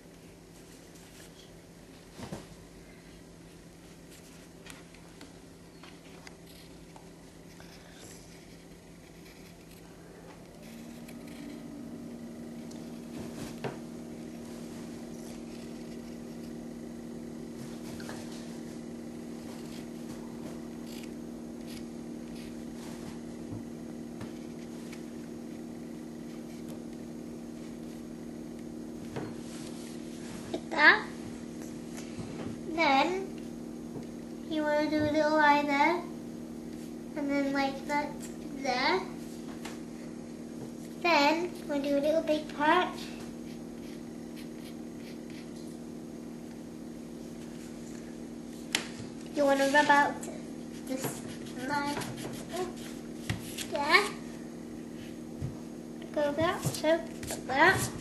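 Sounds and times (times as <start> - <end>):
low hum: 0.8 - 58.0
pencil scratching on paper: 20.8 - 22.6, 43.4 - 45.5, 50.7 - 53.7.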